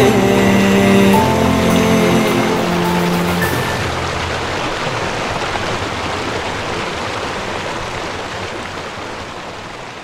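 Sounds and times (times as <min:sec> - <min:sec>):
steady rushing noise: 0:00.0 - 0:07.0.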